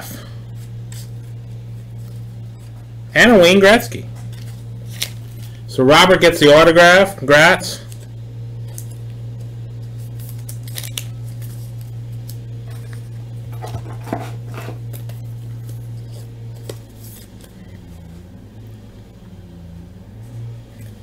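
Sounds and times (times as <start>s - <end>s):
steady low hum: 0.0s - 21.0s
card sleeves rustling: 0.6s - 5.7s, 7.8s - 18.2s.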